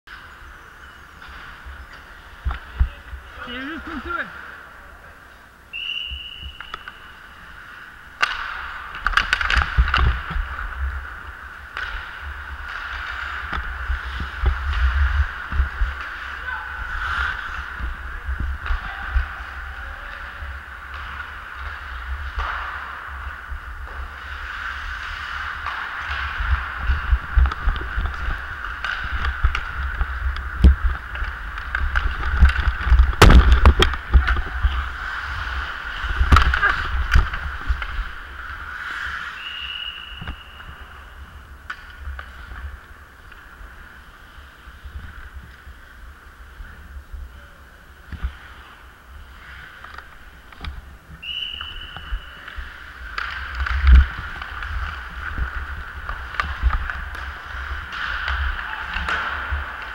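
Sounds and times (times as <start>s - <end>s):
skate blades scraping ice: 0.1s - 47.0s, 48.0s - 59.9s
hockey sticks clacking: 0.1s - 59.9s
hockey stick cracking on puck: 8.1s - 16.4s, 20.8s - 40.7s, 41.6s - 43.6s, 49.7s - 59.9s.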